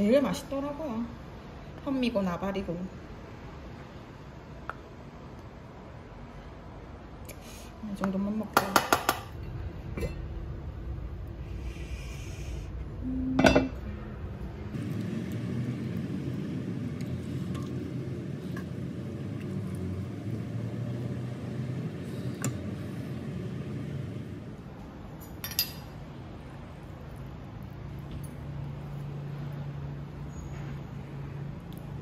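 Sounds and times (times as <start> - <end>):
low steady background noise: 0.0 - 32.0
ladle clinking in pot: 13.4 - 13.8.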